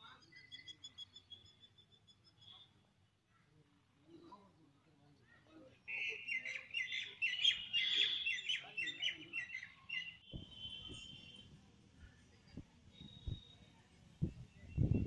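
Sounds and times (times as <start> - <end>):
bird chirping: 0.0 - 3.5, 5.9 - 11.4.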